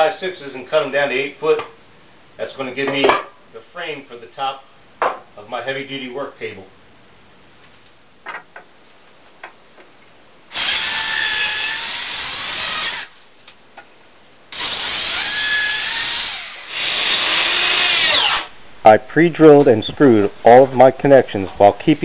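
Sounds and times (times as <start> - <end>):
electric drill drilling wood: 10.5 - 13.2, 14.6 - 18.5.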